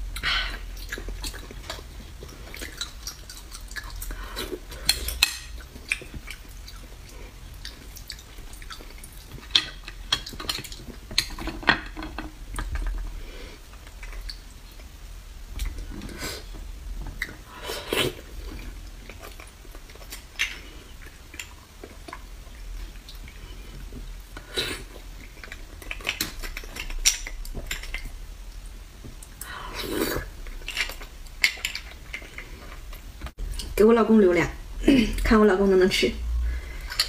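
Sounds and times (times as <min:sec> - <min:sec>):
chewing: 0:00.2 - 0:11.6, 0:17.2 - 0:28.1, 0:29.2 - 0:33.7.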